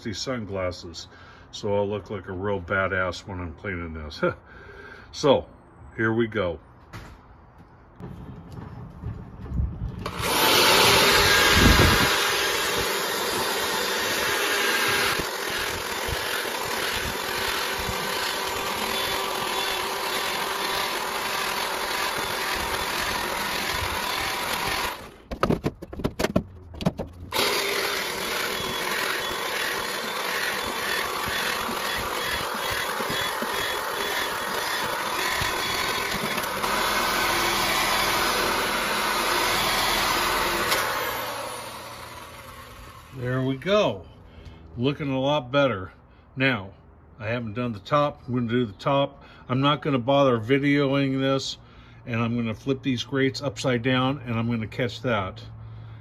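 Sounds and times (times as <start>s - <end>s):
drill wire brush scrubbing metal: 10.1s - 25.1s, 27.3s - 43.5s.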